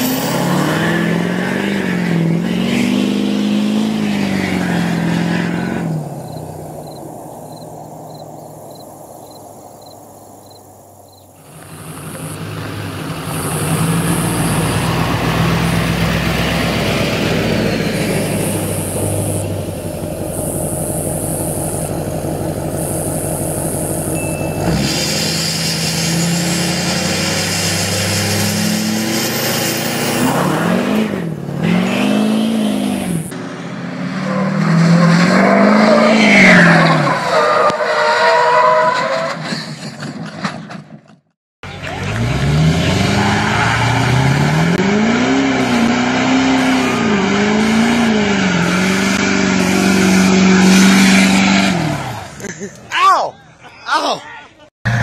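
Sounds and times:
diesel pickup accelerating: 0:00.0 - 0:52.9
diesel engine starting: 0:11.4 - 0:32.2.

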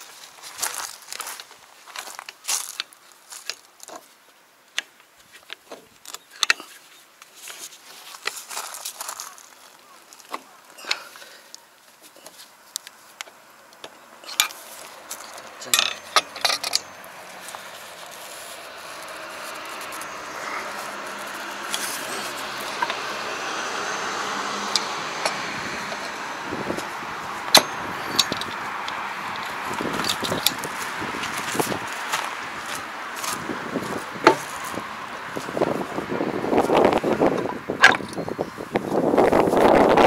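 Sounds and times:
steady background noise: 0:00.0 - 0:40.0
metal clinks of hand tools: 0:15.2 - 0:17.5, 0:27.5 - 0:28.6.

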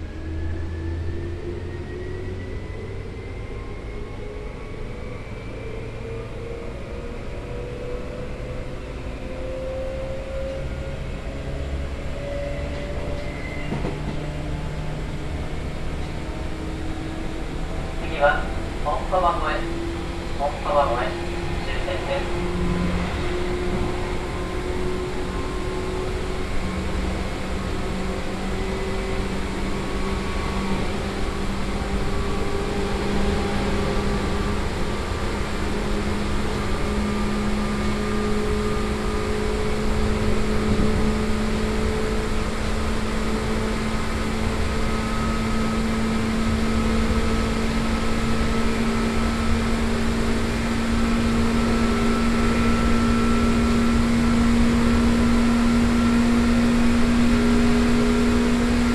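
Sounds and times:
wheels rumbling on rail: 0:00.0 - 0:58.9.

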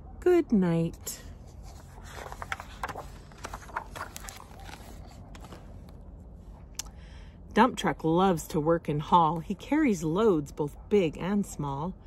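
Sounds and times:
low steady hum: 0:00.0 - 0:12.0
paper rustling: 0:01.2 - 0:06.0
book pages turning: 0:01.3 - 0:06.1.

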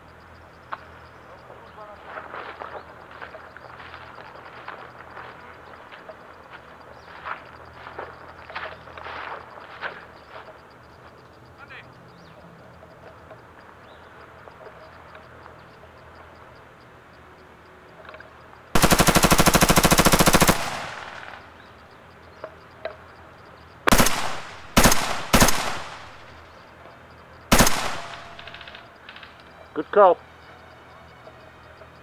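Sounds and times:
airsoft rifle firing full auto: 0:18.8 - 0:21.4, 0:23.9 - 0:26.4, 0:27.5 - 0:28.8.

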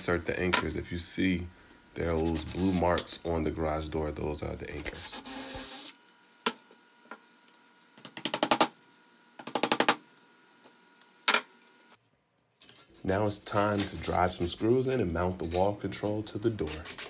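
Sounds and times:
cordless drill running: 0:05.0 - 0:06.0.

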